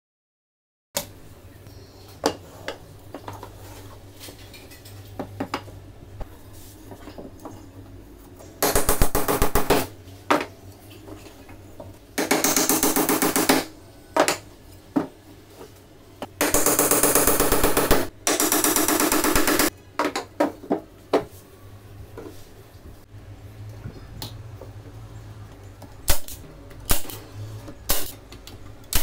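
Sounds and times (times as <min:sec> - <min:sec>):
hammer driving nails into wood: 0:12.2 - 0:13.7.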